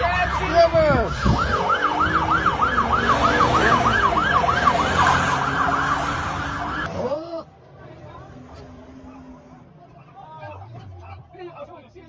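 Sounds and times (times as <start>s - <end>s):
siren yelping: 0.0s - 6.9s.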